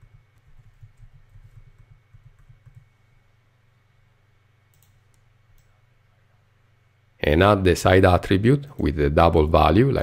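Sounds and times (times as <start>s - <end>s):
soft keyboard typing: 0.0s - 3.0s, 4.7s - 5.8s.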